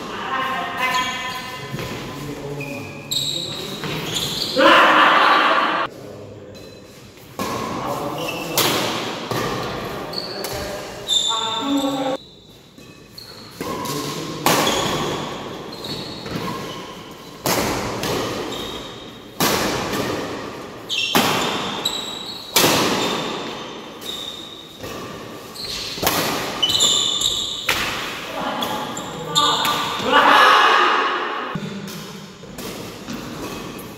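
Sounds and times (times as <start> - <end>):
shoe squeaks: 0.5 - 4.7, 8.0 - 8.6, 10.0 - 14.0, 14.6 - 17.4, 18.4 - 19.2, 20.8 - 26.0, 26.6 - 27.8, 28.4 - 29.8
racket hitting shuttlecock: 13.5 - 30.1, 30.8 - 33.9.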